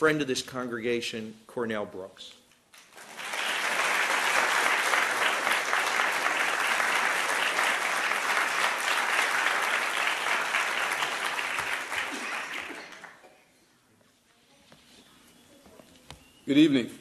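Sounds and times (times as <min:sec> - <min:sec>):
audience clapping: 0:02.8 - 0:13.4.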